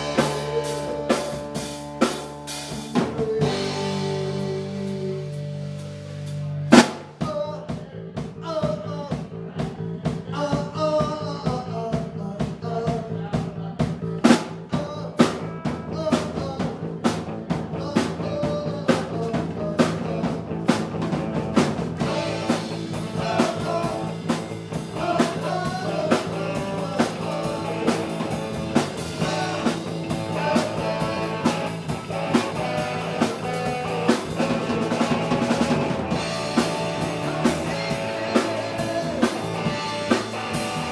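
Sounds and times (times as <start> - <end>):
electric guitar: 0.0 - 7.0, 15.2 - 40.9
live rock band playing: 0.0 - 7.4, 13.8 - 40.9
loud drum hit: 6.7 - 7.3.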